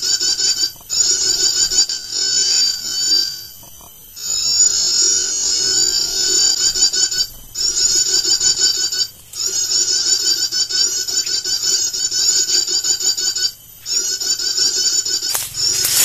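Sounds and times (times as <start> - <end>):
chittering bird call from speaker: 4.2 - 16.0.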